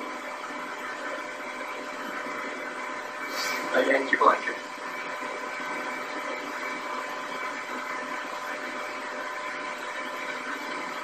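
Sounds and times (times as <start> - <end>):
faint hum tones: 0.0 - 11.0
steady hiss: 3.2 - 4.6.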